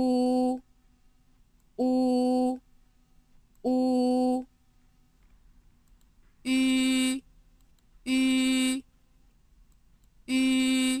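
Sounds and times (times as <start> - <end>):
person pronouncing a vowel: 0.0 - 0.6, 1.8 - 2.6, 3.6 - 4.5, 6.5 - 7.2, 8.1 - 8.8, 10.3 - 11.0.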